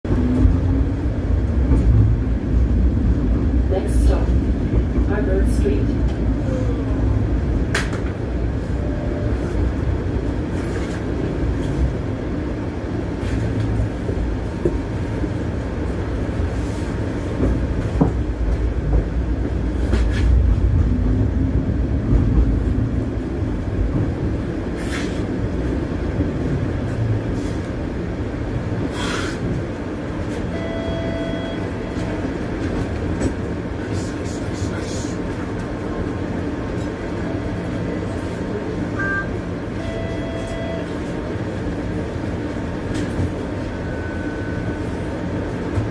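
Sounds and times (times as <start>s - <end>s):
streetcar rumbling: 0.0s - 45.9s
brief steady tone: 30.5s - 32.0s, 38.9s - 41.0s, 43.6s - 45.0s.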